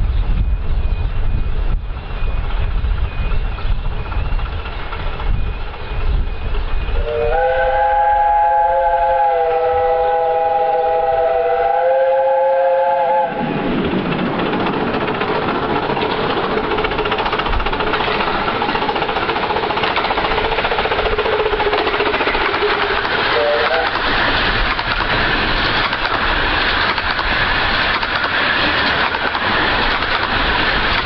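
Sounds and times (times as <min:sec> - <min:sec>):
rushing train noise: 0:00.0 - 0:31.0
steam locomotive chime whistle: 0:06.0 - 0:13.7, 0:22.7 - 0:24.2.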